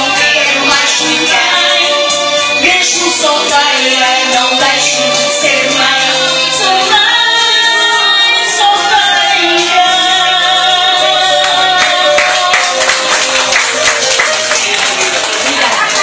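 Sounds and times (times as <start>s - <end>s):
music: 0.0s - 16.0s
woman singing into a microphone: 2.6s - 12.8s.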